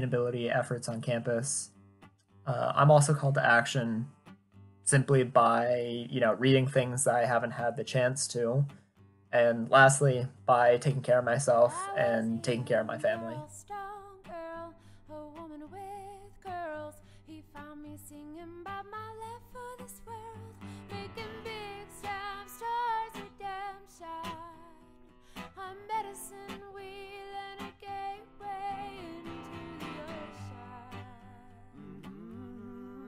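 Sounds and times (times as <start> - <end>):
song with singing and guitar: 9.4 - 33.0.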